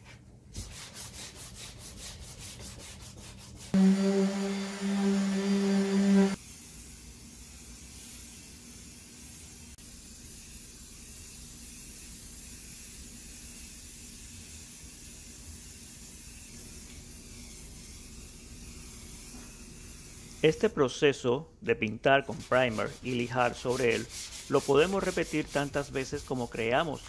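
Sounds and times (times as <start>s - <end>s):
orbital sander humming: 3.8s - 6.4s.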